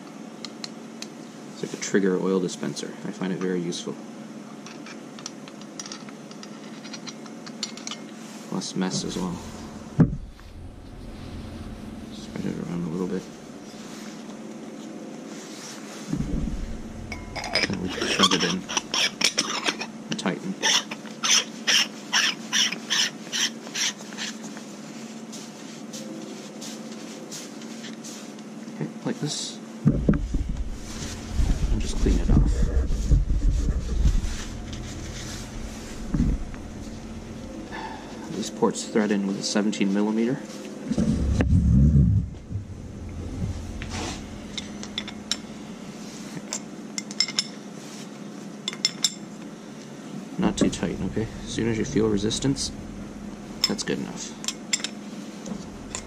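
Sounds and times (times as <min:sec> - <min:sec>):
low steady hum: 0:00.0 - 0:21.1, 0:28.8 - 0:56.0.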